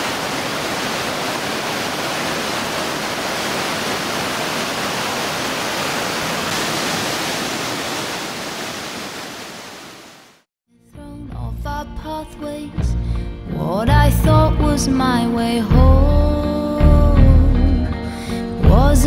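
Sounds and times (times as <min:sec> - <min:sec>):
river rushing through rapids: 0:00.0 - 0:10.4.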